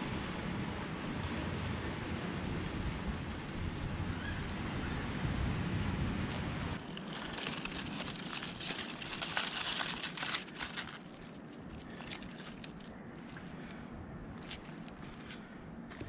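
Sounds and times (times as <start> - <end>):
dry leaves crackling and crunching: 6.8 - 13.4.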